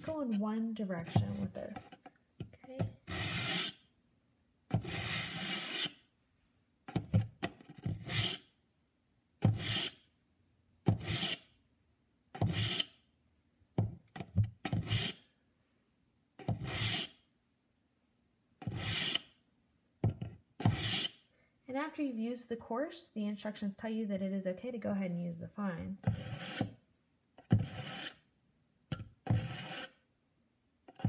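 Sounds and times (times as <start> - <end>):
knife rasping through sharpener: 3.0 - 3.8, 4.8 - 6.0, 7.8 - 8.5, 9.5 - 10.0, 11.0 - 11.5, 12.4 - 13.0, 14.7 - 15.2, 16.6 - 17.2, 18.6 - 19.3, 20.6 - 21.2, 26.0 - 26.7, 27.5 - 28.2, 29.2 - 30.0.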